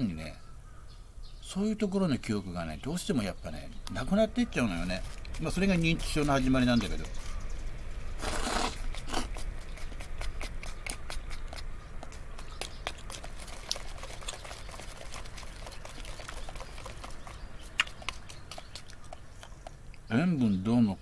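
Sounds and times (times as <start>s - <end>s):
wet chewing clicks: 3.8s - 20.1s
person slurping food: 8.2s - 11.4s.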